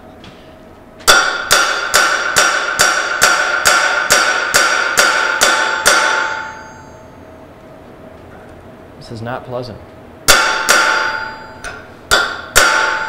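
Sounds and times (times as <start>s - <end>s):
hammer striking chisel with metallic ring: 1.1s - 7.1s, 10.3s - 13.0s.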